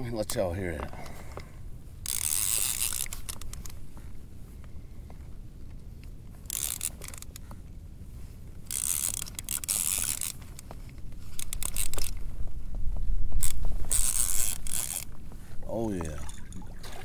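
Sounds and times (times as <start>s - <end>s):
fishing reel drag clicking: 2.0s - 3.7s, 6.4s - 7.4s, 8.6s - 10.6s, 11.3s - 12.2s, 13.4s - 15.1s.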